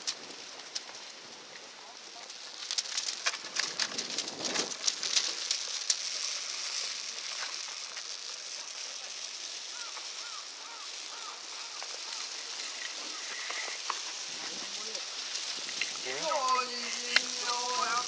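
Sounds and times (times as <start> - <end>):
bonfire crackling and popping: 0.0 - 18.0
steady hiss: 0.0 - 18.0
bird calling: 9.6 - 15.3.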